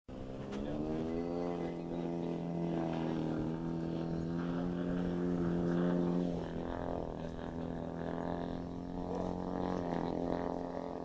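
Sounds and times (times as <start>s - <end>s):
quadcopter motors idling: 0.1s - 11.0s.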